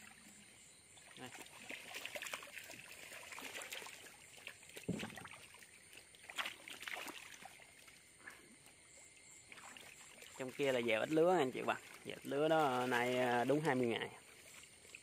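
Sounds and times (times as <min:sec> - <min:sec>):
frogs splashing in water: 0:00.0 - 0:15.0
trickling water: 0:00.0 - 0:15.0
sharp splash: 0:01.0 - 0:08.4, 0:09.5 - 0:15.0
loud thump: 0:04.9 - 0:05.2.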